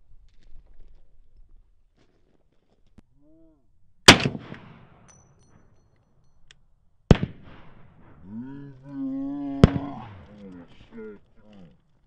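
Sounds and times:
carbine shots with echo: 4.1 - 5.2, 7.1 - 8.2, 9.6 - 10.5
man's voice: 8.4 - 11.8.

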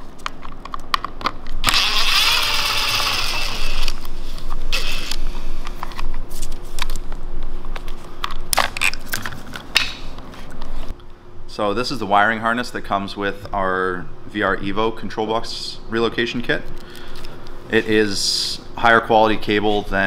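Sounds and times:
impact driver running: 1.6 - 4.0
ratchet wrench clicking: 1.6 - 4.0.

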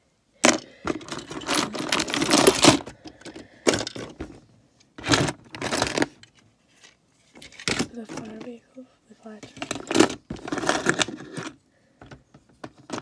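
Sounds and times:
plastic toy pieces clattering: 0.4 - 4.2, 5.0 - 8.5, 9.4 - 11.6, 12.6 - 13.0.

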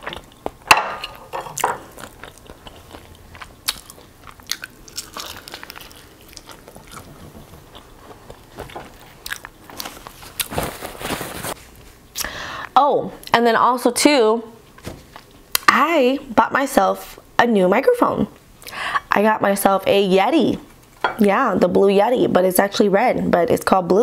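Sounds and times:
crunching fried chicken: 1.8 - 11.5.

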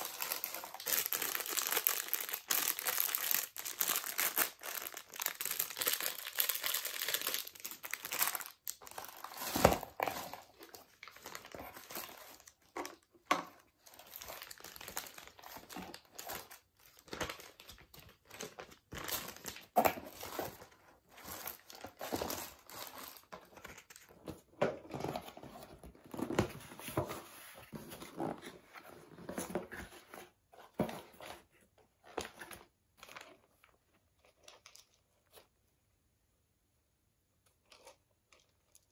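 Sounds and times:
plastic and tissue paper crinkling: 0.0 - 13.0, 13.8 - 24.0.

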